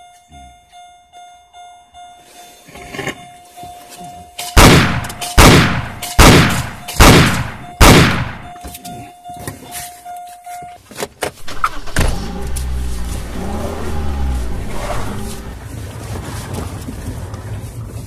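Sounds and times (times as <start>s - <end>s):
faint steady high tone: 0.0s - 4.6s, 8.4s - 11.0s
gunshots with echo: 4.6s - 8.5s.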